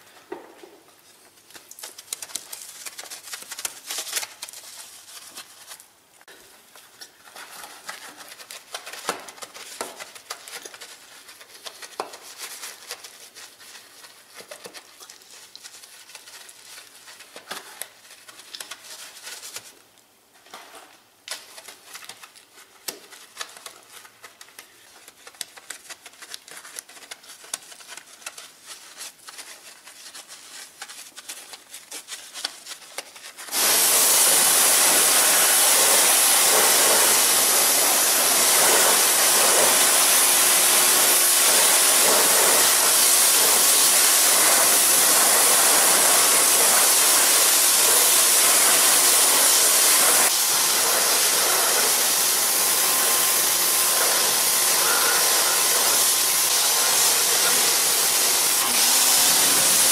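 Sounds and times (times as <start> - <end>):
brush scrubbing a wheel: 6.8 - 19.7, 23.1 - 59.9
pressure washer spray hissing: 33.5 - 59.9.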